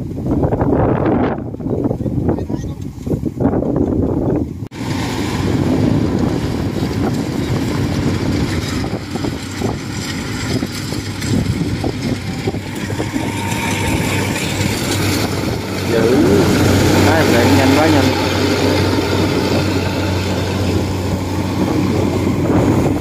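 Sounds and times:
combine harvester running: 4.7s - 23.0s.

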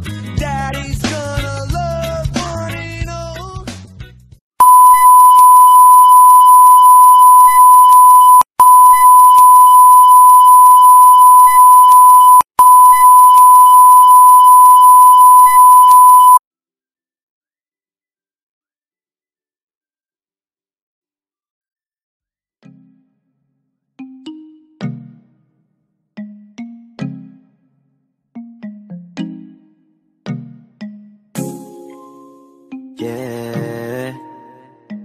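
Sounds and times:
high-pitched test tone: 4.6s - 16.4s
background music: 26.2s - 27.6s, 28.4s - 35.0s.

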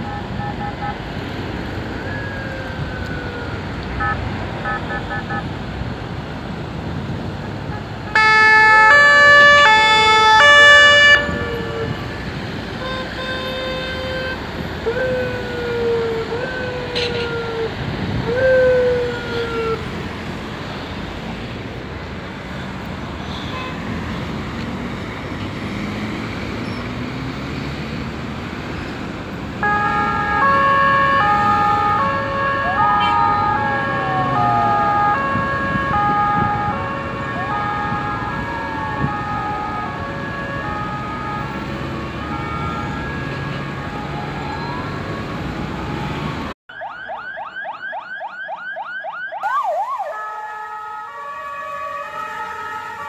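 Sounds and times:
two-tone siren: 0.0s - 1.2s, 1.9s - 5.6s, 7.7s - 19.9s, 29.6s - 53.0s
wailing siren: 0.0s - 5.6s, 7.5s - 20.4s, 29.1s - 53.0s
traffic noise: 0.0s - 53.0s
yelp siren: 1.9s - 5.5s, 8.1s - 19.9s, 29.6s - 53.0s.

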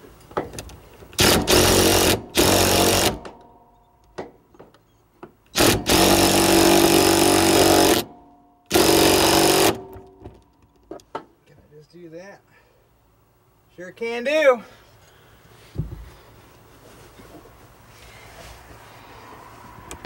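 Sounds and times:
impact driver hammering a bolt: 1.2s - 3.4s, 5.5s - 8.1s, 8.7s - 10.4s.

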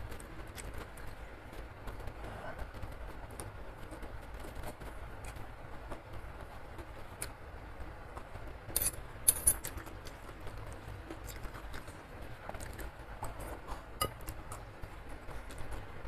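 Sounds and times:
person chewing food: 8.1s - 15.8s.

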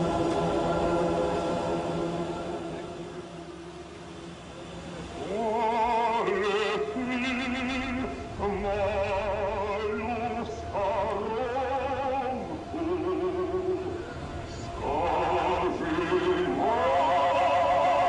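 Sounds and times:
singer with heavy vibrato: 5.1s - 18.0s.

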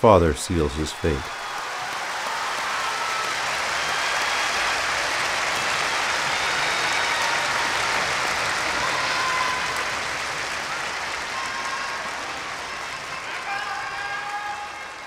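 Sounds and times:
arena audience applauding: 0.2s - 15.0s.

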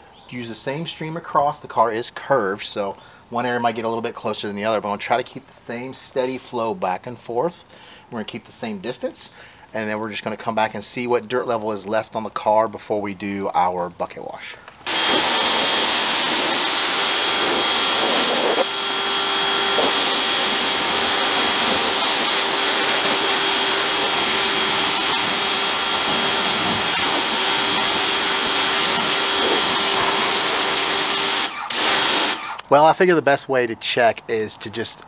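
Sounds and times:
pressure washer spraying: 14.9s - 32.6s.

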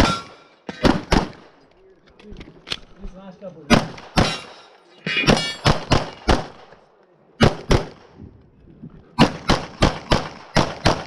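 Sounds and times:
pistol shots: 0.0s - 1.5s, 3.7s - 6.8s, 7.4s - 8.1s, 9.2s - 11.0s.

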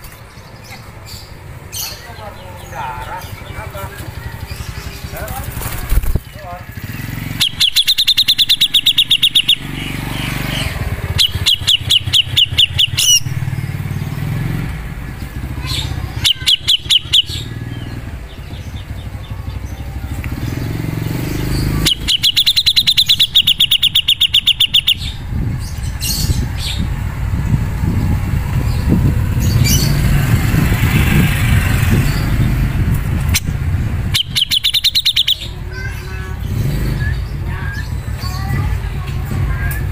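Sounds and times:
bird singing rattling notes: 0.0s - 39.9s
low rumble: 25.1s - 34.1s.

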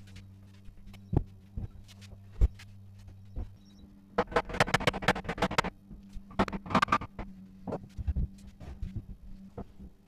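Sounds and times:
low steady hum: 0.0s - 10.0s
clicks and knocks of handled wood: 4.2s - 9.8s.

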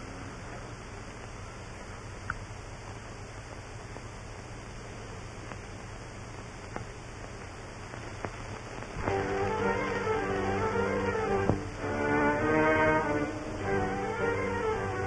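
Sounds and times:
film soundtrack hiss: 0.0s - 15.0s
low hum: 0.0s - 15.0s
faint clicks: 2.2s - 3.0s, 5.4s - 5.9s, 6.6s - 11.6s
orchestral music: 9.0s - 15.0s.

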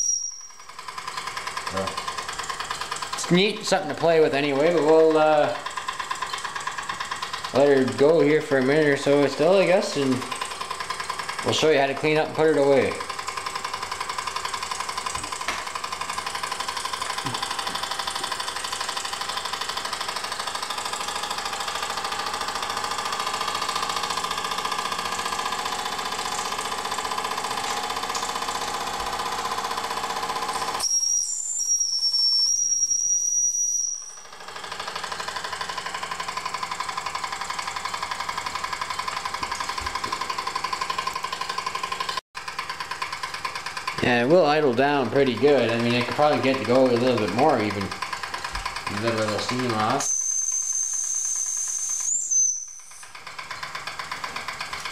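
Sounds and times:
high steam whistle: 0.0s - 0.7s, 30.8s - 34.2s, 49.8s - 53.2s
toy steam engine chuffing: 0.0s - 54.9s.

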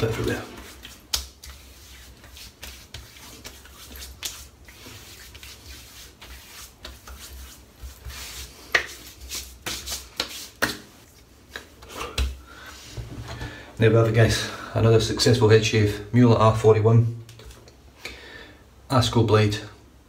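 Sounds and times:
hands patting scalp: 0.0s - 12.4s
hands rubbing skin: 0.0s - 12.4s.

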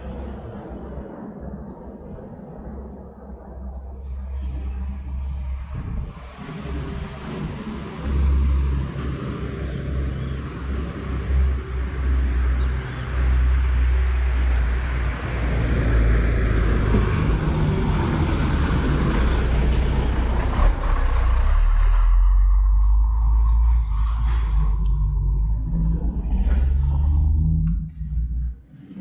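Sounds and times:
vehicle engine low hum: 2.1s - 28.7s.

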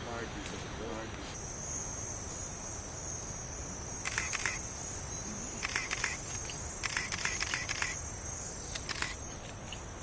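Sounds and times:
rapid clicks or chirps: 4.0s - 4.6s, 5.5s - 8.0s, 8.7s - 9.8s.

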